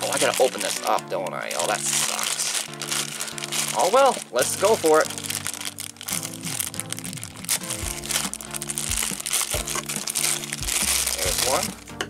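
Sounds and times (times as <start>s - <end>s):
plastic bag crinkling and tearing: 0.0s - 11.8s
background music: 0.0s - 12.0s.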